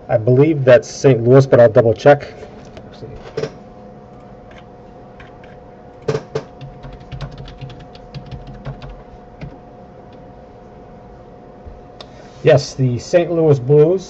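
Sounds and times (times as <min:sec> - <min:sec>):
typing on a computer keyboard: 0:05.2 - 0:10.2.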